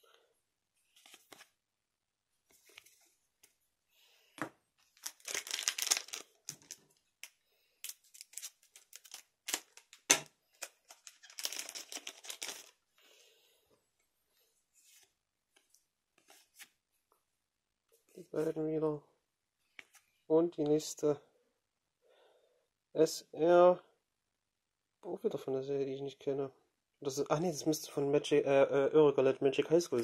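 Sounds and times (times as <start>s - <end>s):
foil pack crinkling and tearing: 5.0s - 6.8s, 7.8s - 10.0s, 10.6s - 12.8s.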